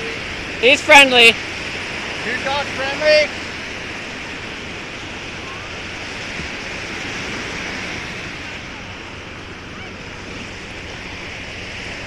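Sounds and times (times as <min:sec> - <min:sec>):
small waves washing on shore: 0:00.0 - 0:12.0
wind on microphone: 0:00.0 - 0:12.0.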